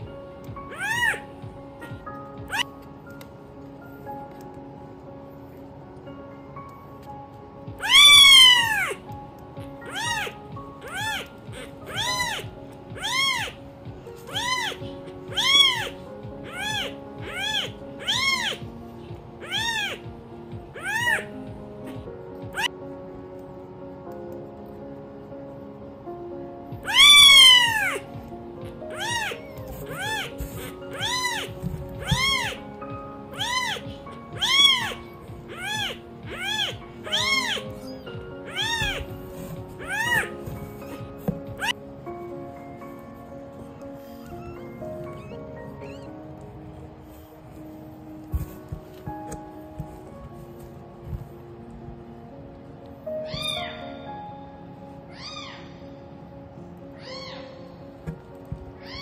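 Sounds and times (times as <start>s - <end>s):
kitten mewing: 0.7s - 2.7s, 7.8s - 9.0s, 9.6s - 13.6s, 14.3s - 18.7s, 19.4s - 20.1s, 20.7s - 22.7s, 26.8s - 28.1s, 28.7s - 32.7s, 33.3s - 41.8s, 44.0s - 46.4s.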